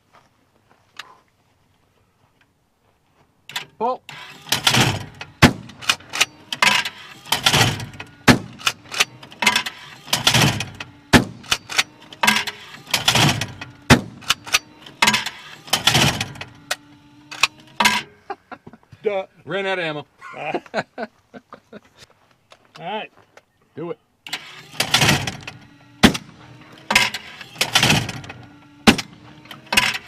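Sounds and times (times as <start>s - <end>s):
clay trap thrower clacks: 3.5s - 18.2s, 24.3s - 30.0s
shotgun shots: 4.2s - 16.4s, 24.7s - 30.0s.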